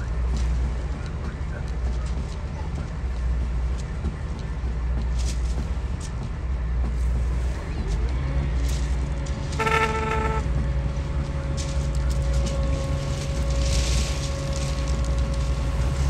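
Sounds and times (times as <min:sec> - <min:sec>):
heavy diesel engine running: 0:00.0 - 0:16.0
steady whine: 0:08.8 - 0:16.0
short horn toot: 0:09.6 - 0:10.5.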